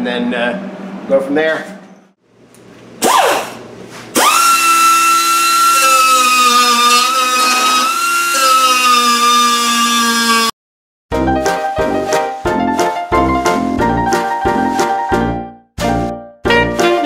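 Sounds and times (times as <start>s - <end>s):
air die grinder whine: 3.0s - 10.6s.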